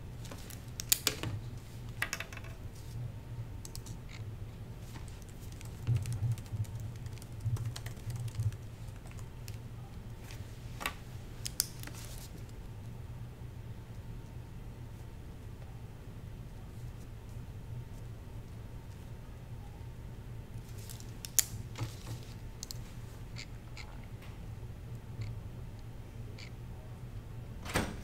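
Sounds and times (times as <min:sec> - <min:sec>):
steady low hum: 0:00.0 - 0:28.0
laptop keyboard typing: 0:05.1 - 0:09.6.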